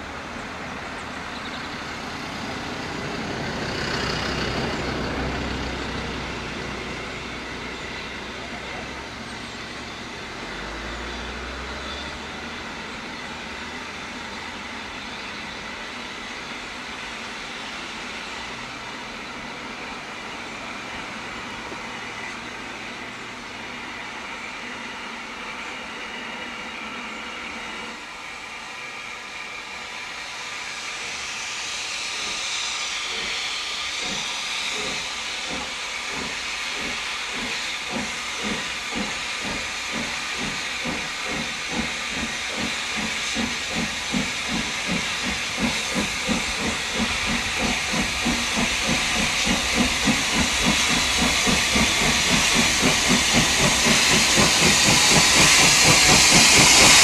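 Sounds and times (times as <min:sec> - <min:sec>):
steam hissing: 0:00.0 - 0:57.0
steam locomotive exhaust beats: 0:00.0 - 0:57.0.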